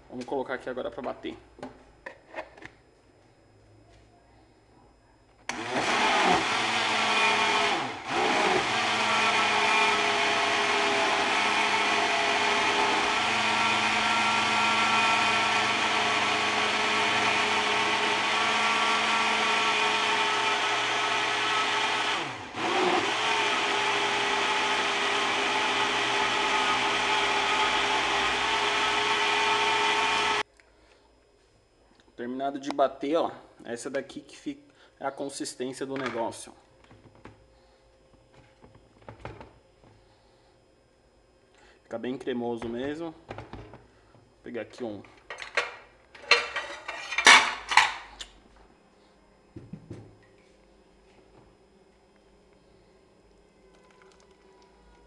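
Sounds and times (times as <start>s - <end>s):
countertop blender running: 5.5s - 30.4s.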